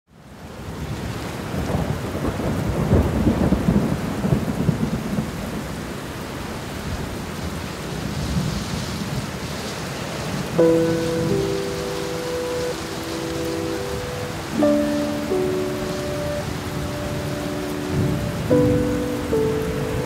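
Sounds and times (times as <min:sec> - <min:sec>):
heavy rain: 0:00.1 - 0:20.0
low rumble of thunder: 0:01.5 - 0:06.0.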